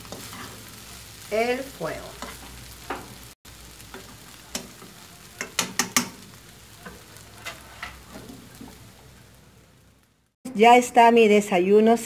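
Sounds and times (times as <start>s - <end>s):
faint sizzle: 0.0s - 12.0s
fork scraping frying pan: 3.9s - 8.7s.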